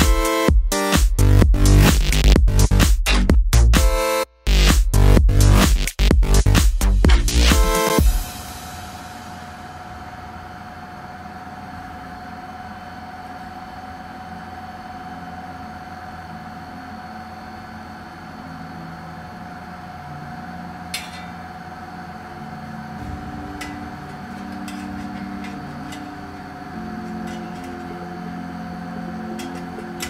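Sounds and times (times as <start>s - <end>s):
mid-pitched whine: 6.9s - 30.0s
background hum: 18.7s - 30.0s
sheet metal parts clicking: 23.4s - 28.0s, 29.3s - 30.0s.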